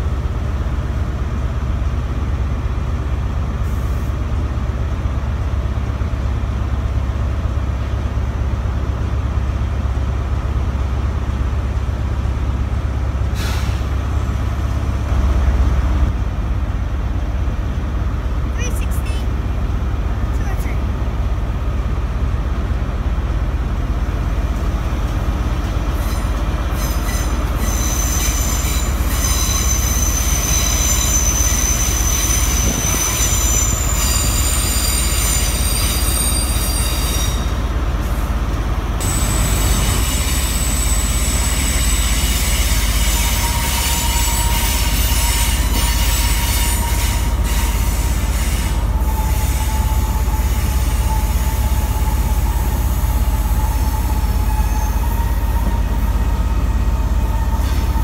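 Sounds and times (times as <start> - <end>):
train rumbling into platform: 0.0 - 58.0
train wheels squealing: 25.9 - 37.6, 39.0 - 58.0.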